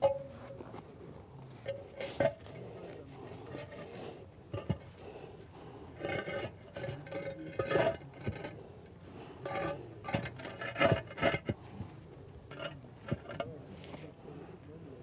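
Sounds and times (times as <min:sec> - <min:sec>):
concrete blocks scraping and knocking: 0:00.0 - 0:00.9, 0:01.5 - 0:14.1.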